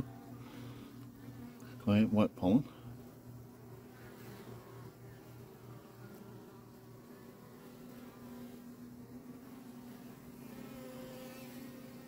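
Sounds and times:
bees buzzing: 0:00.0 - 0:12.0.

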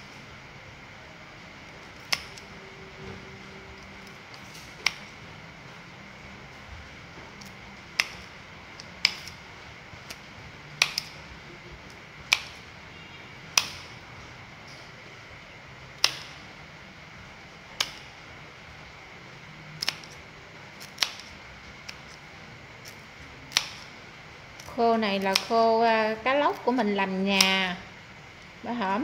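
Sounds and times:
scissors snipping: 0:01.9 - 0:02.5, 0:03.8 - 0:05.2, 0:07.4 - 0:09.4, 0:10.8 - 0:11.2, 0:13.6 - 0:13.8, 0:19.8 - 0:20.2, 0:20.8 - 0:22.2, 0:22.8 - 0:23.9, 0:24.6 - 0:25.6.

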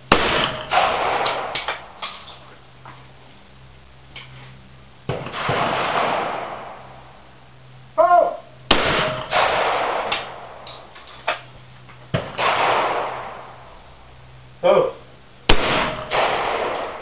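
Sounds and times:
distant gunshot reports: 0:00.1 - 0:01.7, 0:05.1 - 0:06.8, 0:08.7 - 0:10.5, 0:12.1 - 0:13.6, 0:15.5 - 0:17.0
shotgun shots: 0:00.1 - 0:02.0, 0:05.1 - 0:06.9, 0:08.7 - 0:10.6, 0:12.1 - 0:13.7, 0:15.5 - 0:17.0
person shouting: 0:08.0 - 0:08.5.

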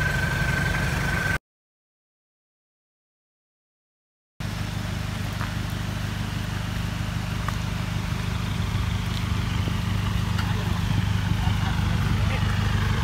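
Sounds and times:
vehicle engine idling: 0:00.0 - 0:01.4, 0:04.4 - 0:13.0.

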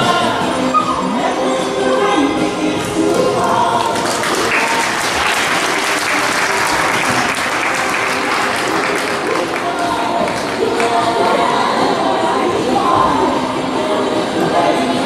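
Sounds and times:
faint background music: 0:00.0 - 0:15.0
audience applauding: 0:03.1 - 0:11.0.

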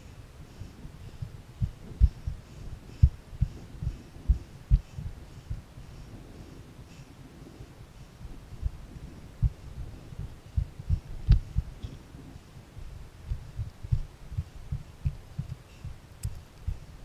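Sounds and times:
dull low thumps of footsteps: 0:00.0 - 0:17.0.

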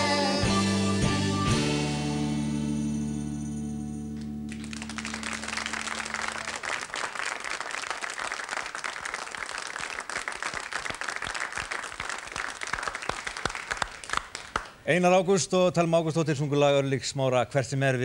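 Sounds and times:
audience applauding: 0:04.5 - 0:14.8.

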